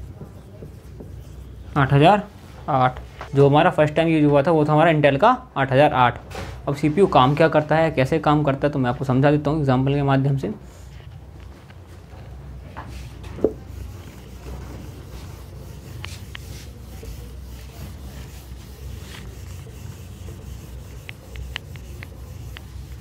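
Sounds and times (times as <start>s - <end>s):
duster wiping a whiteboard: 0.0s - 1.7s, 12.8s - 23.0s
steady low hum: 11.2s - 23.0s.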